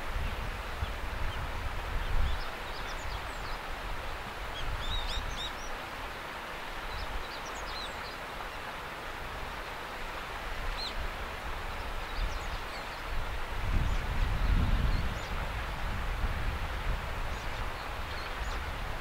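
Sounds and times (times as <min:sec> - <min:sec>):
rushing outdoor noise: 0:00.0 - 0:19.0
small birds chirping: 0:04.5 - 0:05.8.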